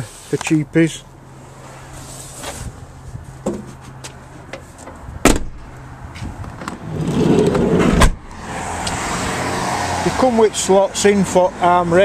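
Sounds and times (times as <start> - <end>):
rustling and scuffing: 1.8 - 5.0
van door latch clunk: 5.2 - 5.7, 7.8 - 8.3.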